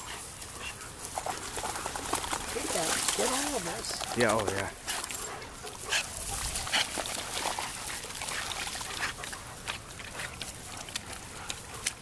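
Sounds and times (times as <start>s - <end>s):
dogs scuffling on grass: 0.0s - 12.0s.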